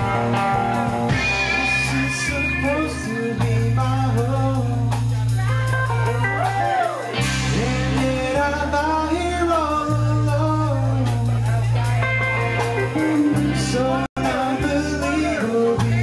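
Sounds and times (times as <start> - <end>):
live rock band playing: 0.0 - 16.0
man singing: 1.5 - 5.5, 7.2 - 16.0.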